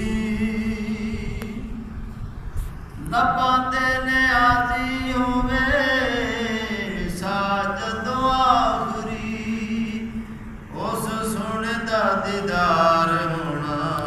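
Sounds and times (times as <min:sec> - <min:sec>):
low drone: 0:00.0 - 0:14.0
man chanting: 0:03.0 - 0:14.0.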